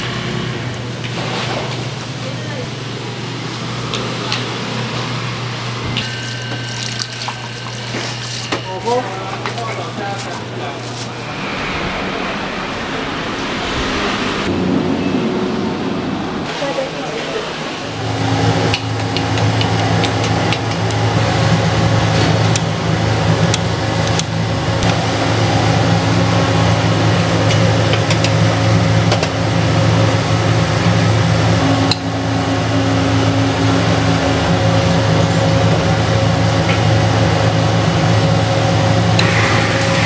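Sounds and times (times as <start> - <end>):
kitchen machinery humming: 0.0 - 15.5, 16.2 - 40.0.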